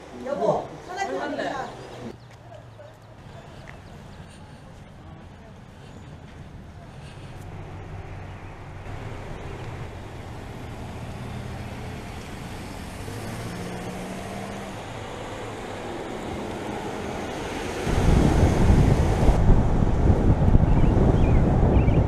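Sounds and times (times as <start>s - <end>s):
car engine and tyres humming: 1.9s - 21.9s
wind buffeting microphone: 16.2s - 22.0s.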